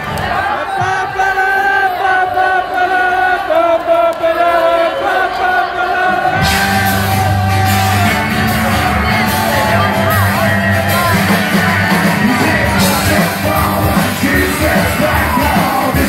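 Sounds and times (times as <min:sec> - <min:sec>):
person singing: 0:06.3 - 0:16.0
live rock band playing: 0:06.4 - 0:16.0.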